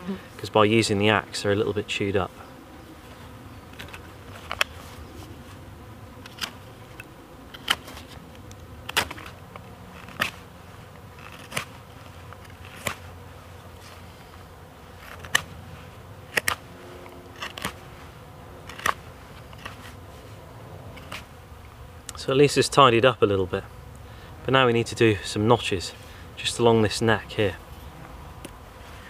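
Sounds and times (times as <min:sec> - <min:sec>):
steady low hum: 0:00.0 - 0:29.0
knife slicing wood: 0:08.9 - 0:10.4, 0:11.2 - 0:11.8, 0:17.4 - 0:17.8.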